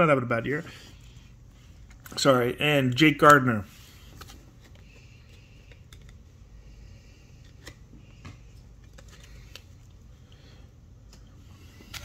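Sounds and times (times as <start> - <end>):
cards and foil packs rustling: 8.4 - 10.0, 11.1 - 12.0.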